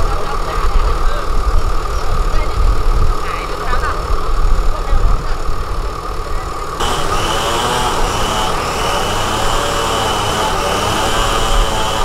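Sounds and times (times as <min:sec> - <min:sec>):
engine idling: 0:00.0 - 0:12.0
hiss: 0:06.8 - 0:12.0.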